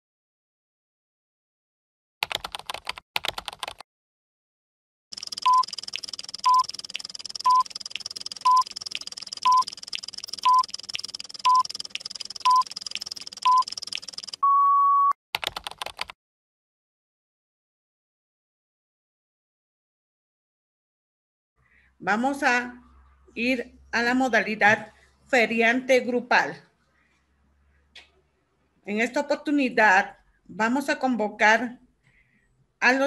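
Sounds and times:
short beeps: 0:07.4 - 0:07.7, 0:08.4 - 0:08.7, 0:09.4 - 0:09.7, 0:10.4 - 0:10.7, 0:11.4 - 0:11.7, 0:12.5 - 0:12.7, 0:14.4 - 0:15.2
long beep: 0:14.4 - 0:15.2.

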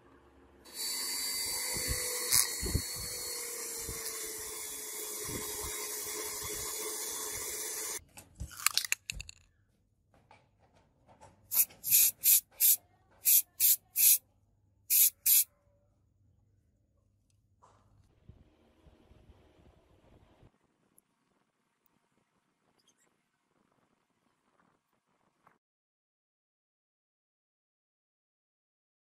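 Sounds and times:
aerosol can spraying: 0:00.7 - 0:08.0, 0:11.5 - 0:14.2, 0:14.9 - 0:15.5
rotary tool polishing metal: 0:00.7 - 0:08.0, 0:11.5 - 0:14.2, 0:14.9 - 0:15.5.

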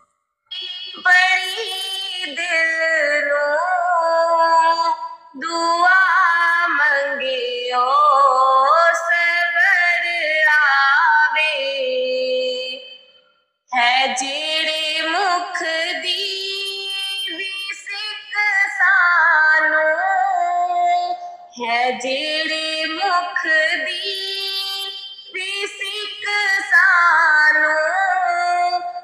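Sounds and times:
woman singing devotional song: 0:00.0 - 0:29.0.

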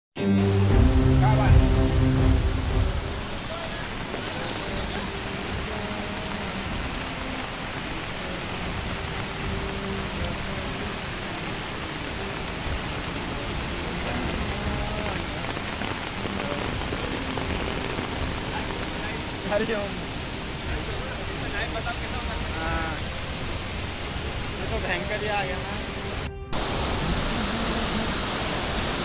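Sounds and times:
flood torrent rushing: 0:00.4 - 0:29.0
heavy rain on hard surfaces: 0:00.4 - 0:29.0.

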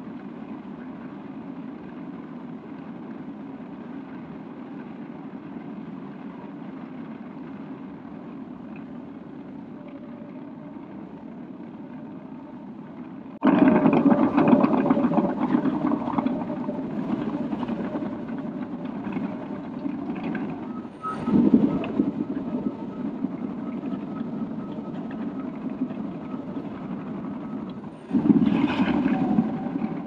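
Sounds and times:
bulldozer diesel engine running: 0:07.4 - 0:30.0.

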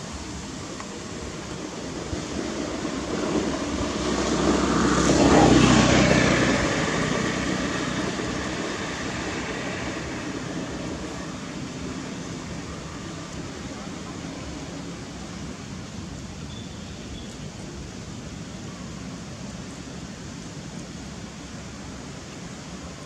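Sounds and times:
vehicle driving past: 0:03.4 - 0:11.4.

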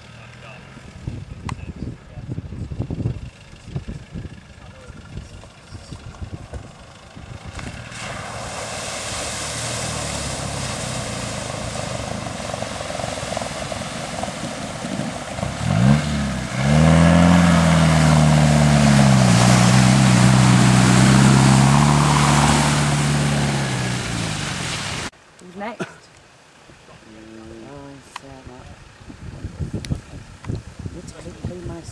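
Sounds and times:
vehicle engine revving: 0:00.0 - 0:25.1
splashing water: 0:07.4 - 0:25.1.

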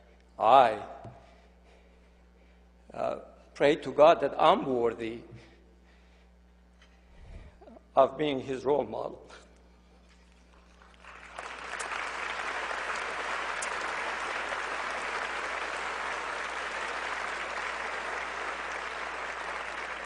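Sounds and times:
audience applauding: 0:10.8 - 0:20.0.

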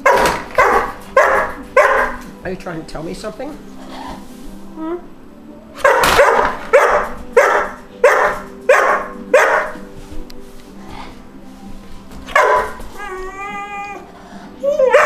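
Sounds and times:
young dog barking: 0:00.0 - 0:02.2, 0:05.8 - 0:09.8, 0:12.3 - 0:12.8, 0:14.8 - 0:15.0.

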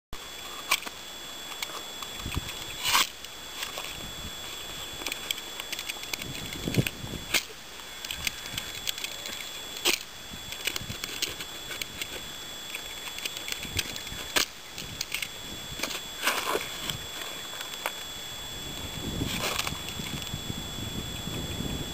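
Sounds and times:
paperboard carton crackling and tearing: 0:15.8 - 0:18.0, 0:19.2 - 0:20.2.

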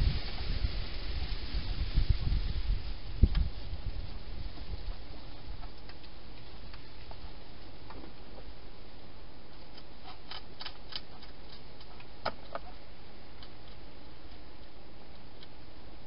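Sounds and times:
steady hiss: 0:00.0 - 0:16.0
hedgehog crunching dry food: 0:09.6 - 0:12.7.

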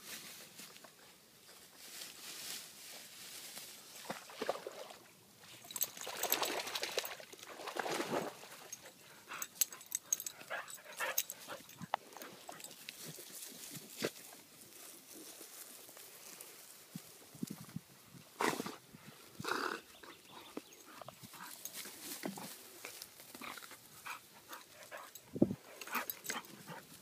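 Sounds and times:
rustling through grass and brush: 0:00.0 - 0:05.8, 0:11.0 - 0:19.4, 0:20.4 - 0:27.0
dog splashing through water: 0:05.6 - 0:08.8.

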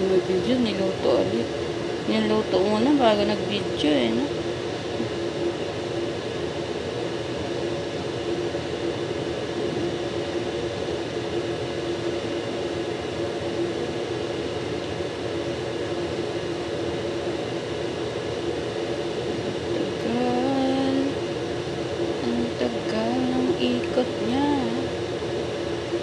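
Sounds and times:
electric fan running: 0:00.0 - 0:26.0.

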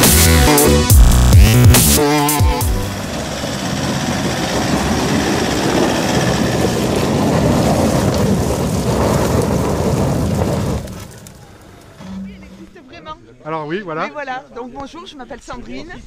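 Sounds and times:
engine rumbling: 0:00.0 - 0:13.0
tyres crunching over stones: 0:02.9 - 0:12.8.

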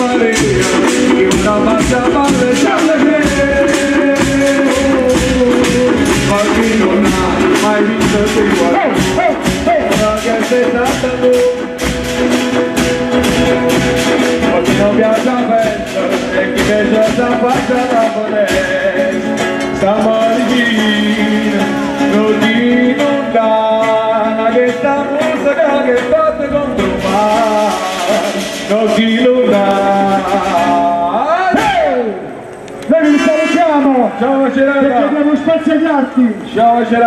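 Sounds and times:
person singing: 0:00.0 - 0:12.5, 0:13.2 - 0:32.2.

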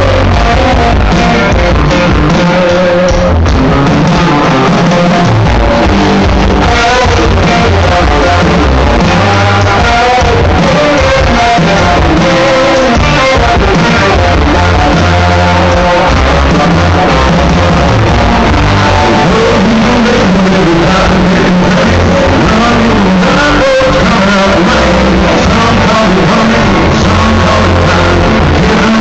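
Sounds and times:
live country-rock band: 0:00.0 - 0:29.0
man singing lead vocal: 0:00.0 - 0:29.0.

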